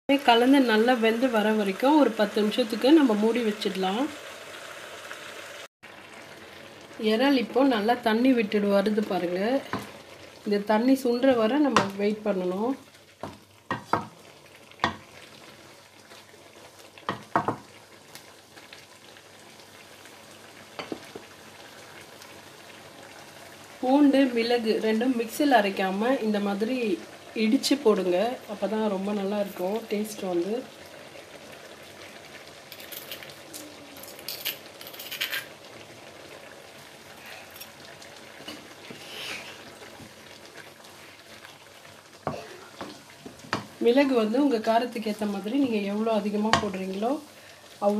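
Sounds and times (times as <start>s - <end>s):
curry simmering: 0.1s - 47.9s
prawns sizzling in a wok: 0.1s - 47.9s
wooden spoon knocking pan: 11.7s - 12.0s, 13.2s - 14.2s, 14.8s - 15.1s, 17.1s - 17.7s, 46.5s - 46.8s
wooden spoon stirring pan: 13.0s - 15.4s, 16.0s - 17.7s, 38.4s - 44.2s.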